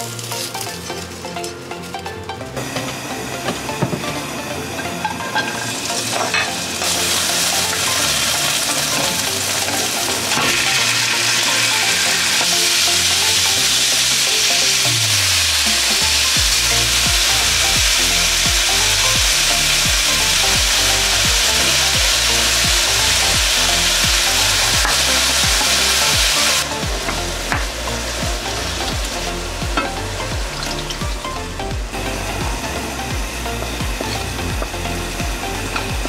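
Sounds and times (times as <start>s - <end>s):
food sizzling in hot oil: 4.7s - 35.9s.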